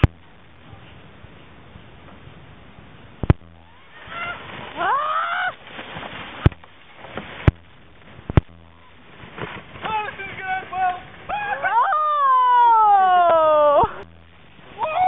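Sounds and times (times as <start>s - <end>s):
person yelling: 9.9s - 14.0s, 14.8s - 15.0s.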